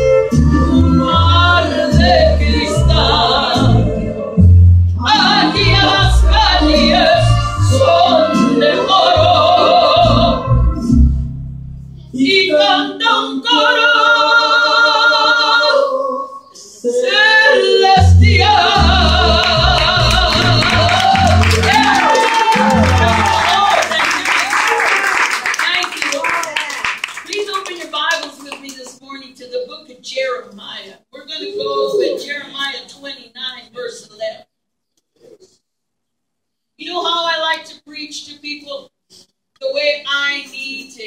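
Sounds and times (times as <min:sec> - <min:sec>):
low musical accompaniment: 0:00.0 - 0:12.2, 0:18.0 - 0:23.9
woman singing into microphone: 0:00.8 - 0:04.2, 0:05.0 - 0:10.4, 0:12.2 - 0:23.8.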